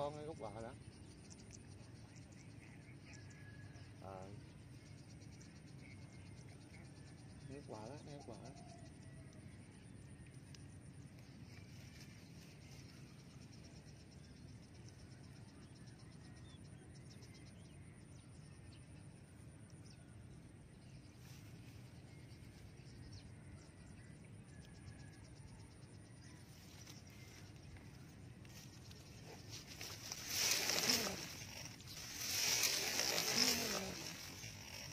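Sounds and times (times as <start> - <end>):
high insect whine: 0.0 - 34.9.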